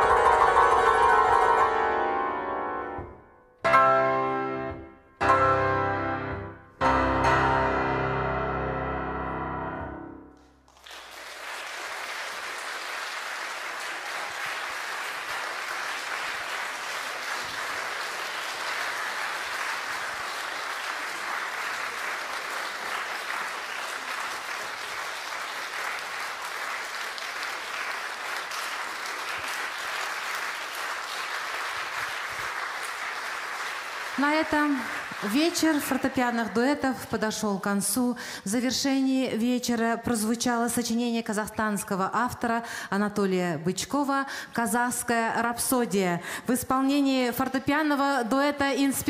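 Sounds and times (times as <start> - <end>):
piano chord ringing: 0.0 - 10.5
audience applause: 10.7 - 36.1.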